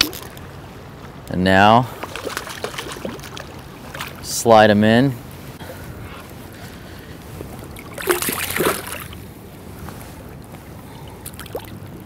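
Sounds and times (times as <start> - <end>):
fish splashing at surface: 2.0 - 4.2, 7.8 - 9.2.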